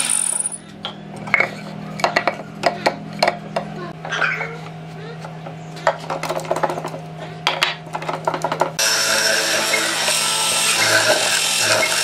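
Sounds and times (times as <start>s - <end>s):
mortiser motor humming: 8.8s - 12.0s.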